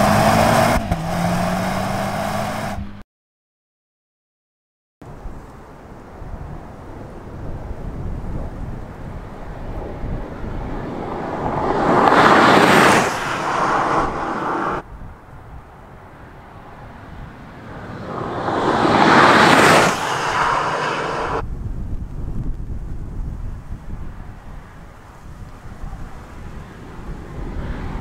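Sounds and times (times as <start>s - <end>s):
car passing at speed: 9.5s - 14.8s, 16.4s - 21.4s.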